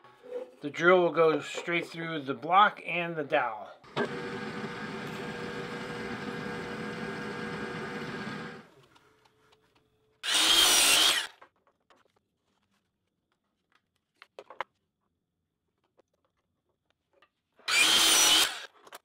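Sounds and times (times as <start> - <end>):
drill press motor running: 3.9 - 8.7.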